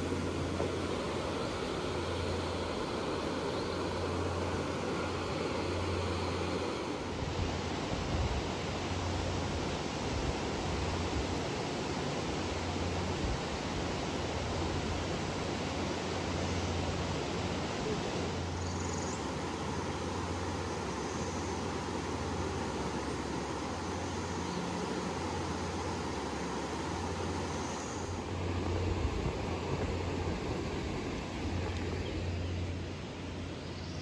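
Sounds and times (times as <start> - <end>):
wind rumble on microphone: 0.0 - 16.1, 28.1 - 34.0
stream running over rocks: 0.0 - 34.0.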